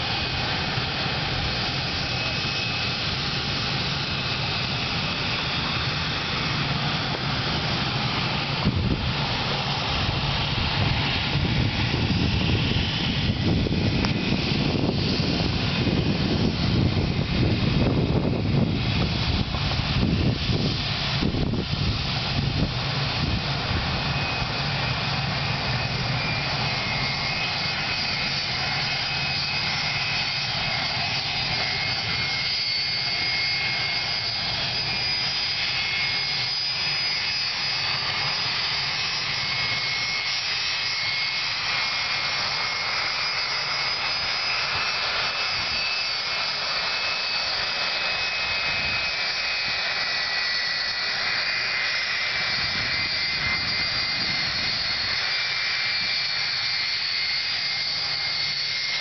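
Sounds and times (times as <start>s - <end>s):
jet engines whining: 0.0s - 59.0s.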